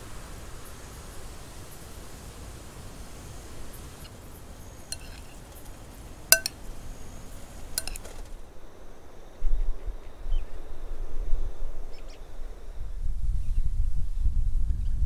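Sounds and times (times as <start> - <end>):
glass jar clinking on glass bowl: 4.9 - 5.3, 6.3 - 6.6, 7.8 - 8.0.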